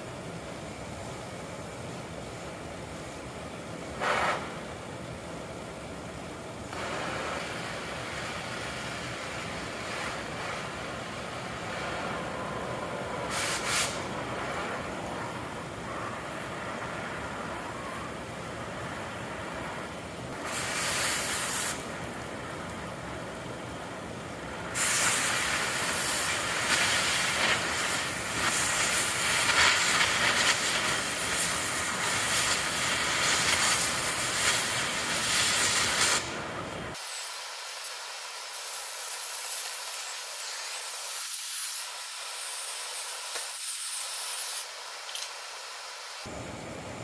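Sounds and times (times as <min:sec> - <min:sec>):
cutting torch hissing: 0:03.9 - 0:04.8, 0:06.6 - 0:23.0, 0:23.7 - 0:46.4
torch cutting through steel: 0:04.0 - 0:04.7, 0:06.7 - 0:17.5, 0:18.8 - 0:22.2, 0:24.4 - 0:46.3.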